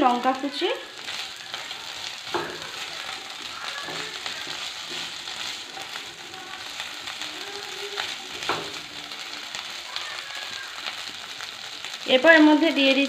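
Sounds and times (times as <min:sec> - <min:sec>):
vegetables sizzling in oil: 0:00.0 - 0:13.0
spatula scraping a pan: 0:00.8 - 0:08.8.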